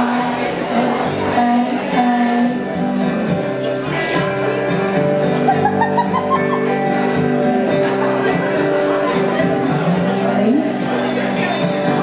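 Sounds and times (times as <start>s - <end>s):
person singing: 0.0s - 4.9s
strummed acoustic guitar: 0.0s - 12.0s.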